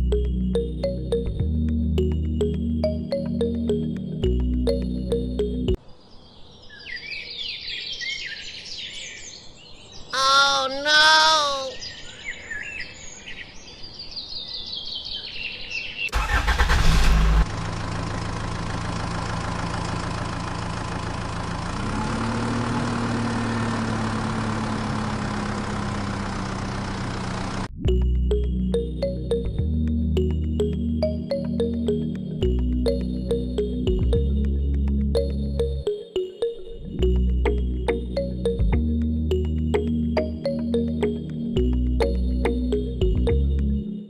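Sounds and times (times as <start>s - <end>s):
birds chirping: 4.6s - 16.2s
tractor engine running: 16.1s - 35.8s.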